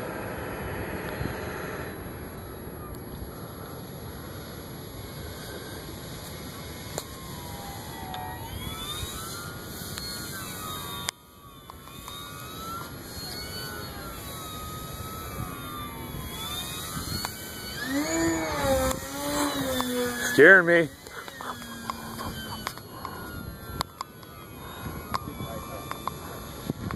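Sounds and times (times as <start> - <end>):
model airplane motor whining: 0.0 - 26.9
wind noise on microphone: 11.9 - 26.9.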